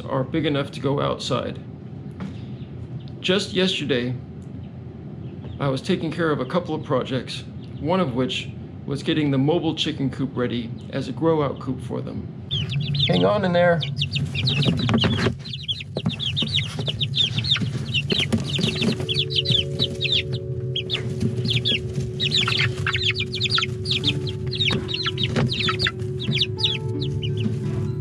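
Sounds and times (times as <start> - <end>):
chicks peeping: 4.4 - 8.5, 10.6 - 28.0.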